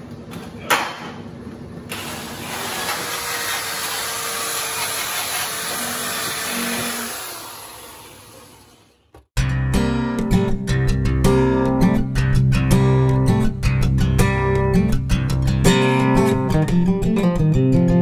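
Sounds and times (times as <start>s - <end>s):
die grinder sanding metal: 2.0s - 9.1s.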